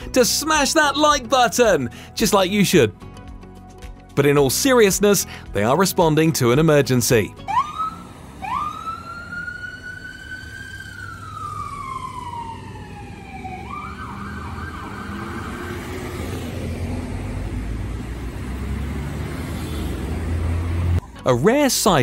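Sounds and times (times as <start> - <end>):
road traffic noise: 0.0 - 3.2, 4.6 - 22.0
ambulance siren wailing: 7.4 - 17.8.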